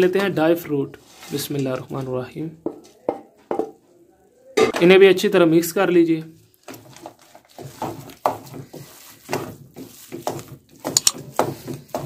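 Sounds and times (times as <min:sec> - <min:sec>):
wooden spoon scraping a metal pan: 0:00.3 - 0:02.1, 0:06.2 - 0:12.0.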